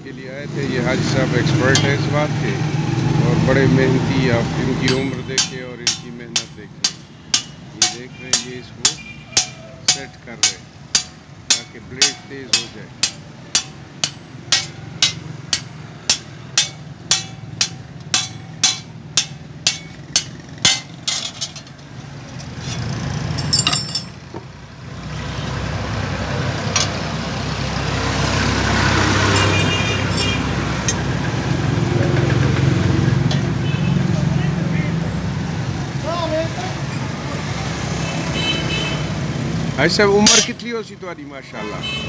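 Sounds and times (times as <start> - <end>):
hammer striking blade on anvil: 1.6 - 2.3, 4.1 - 21.8, 40.2 - 40.8.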